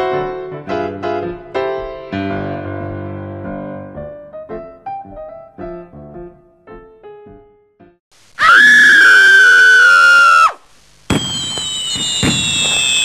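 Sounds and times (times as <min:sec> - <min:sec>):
high-pitched shriek: 0:08.4 - 0:10.6, 0:11.2 - 0:13.0
falling whistling tone: 0:08.7 - 0:13.0
sharp pops: 0:10.6 - 0:13.0.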